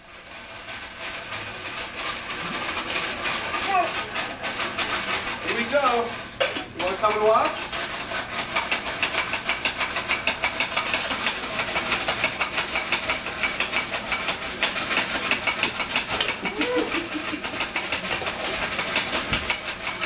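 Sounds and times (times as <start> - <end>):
popcorn crackling: 0.0 - 20.0
popcorn maker whirring: 0.0 - 20.0
child vocalizing: 16.5 - 16.9.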